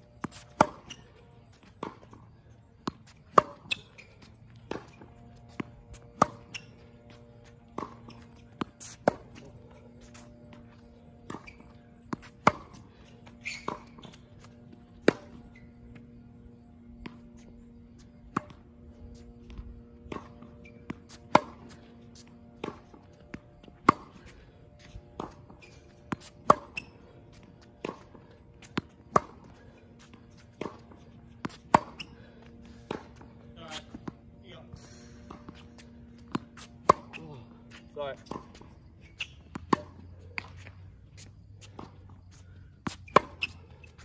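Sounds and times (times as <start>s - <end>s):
ball bouncing on court: 0.2s - 2.1s, 2.8s - 16.0s, 25.2s - 26.9s
tennis racket hitting ball: 0.2s - 2.1s, 2.8s - 16.2s, 18.2s - 40.8s, 42.7s - 44.0s.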